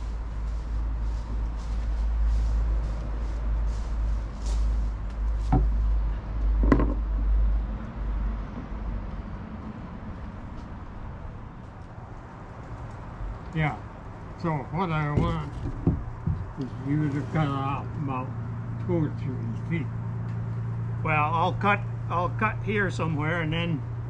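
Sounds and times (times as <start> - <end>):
dry leaves rustling: 0.0 - 5.9
steady low rumble: 0.0 - 24.0
stick knocking on wooden boards: 5.5 - 5.8, 6.6 - 7.0, 15.1 - 16.8.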